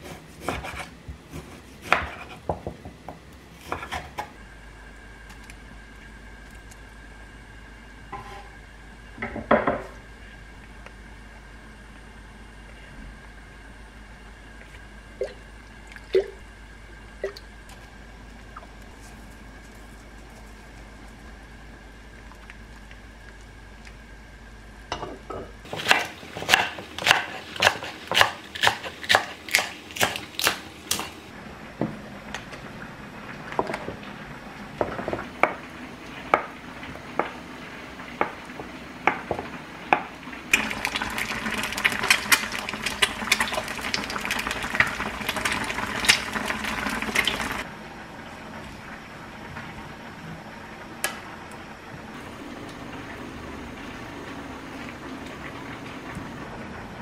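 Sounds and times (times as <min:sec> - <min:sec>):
stew boiling and bubbling: 0:00.0 - 0:57.0
knife chopping on wooden board: 0:25.7 - 0:31.1.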